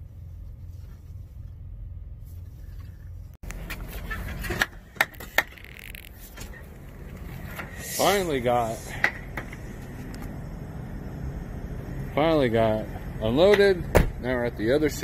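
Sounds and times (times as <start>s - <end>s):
truck engine idling: 6.2s - 15.0s.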